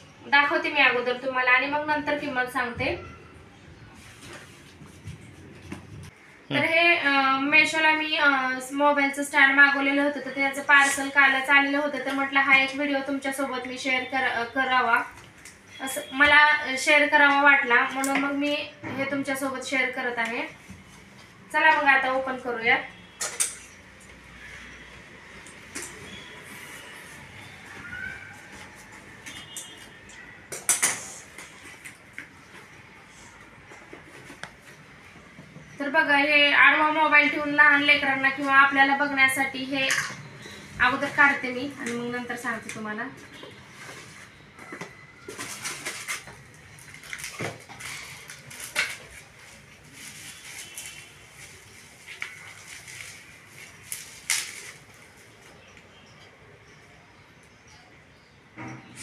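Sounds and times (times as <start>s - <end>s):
cardboard crackling and rustling: 43.6s - 55.4s
plastic wrap crinkling: 44.9s - 55.4s.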